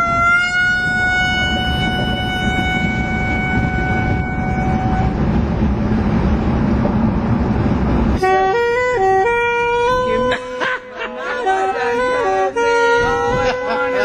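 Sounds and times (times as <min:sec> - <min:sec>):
wind instrument melody: 0:00.0 - 0:05.4, 0:08.2 - 0:14.0
street traffic noise: 0:00.0 - 0:14.0.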